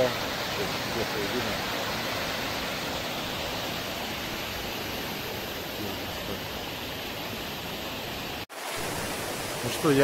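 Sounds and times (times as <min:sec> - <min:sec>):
river rushing over rocks: 0:00.0 - 0:10.0.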